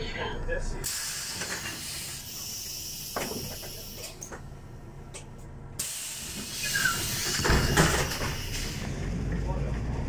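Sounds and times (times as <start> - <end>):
idling bus hum: 0.0 - 10.0
compressed air hissing: 0.8 - 4.2, 5.8 - 8.8.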